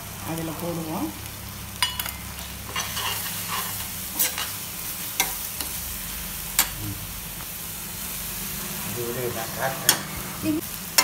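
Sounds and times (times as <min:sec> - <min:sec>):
steady sizzle: 0:00.0 - 0:11.0
spoon stirring and scraping pan: 0:01.8 - 0:05.8.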